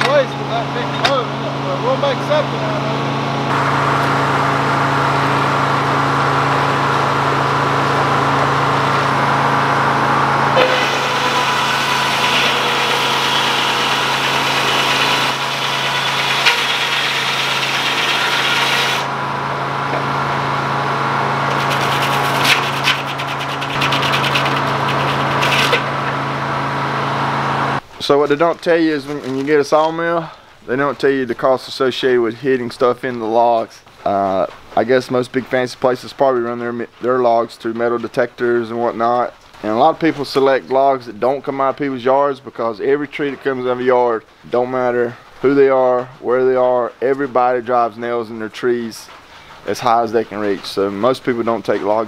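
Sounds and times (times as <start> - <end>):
diesel engine hum: 0.0 - 27.8
saw blade cutting log hiss: 10.6 - 19.1.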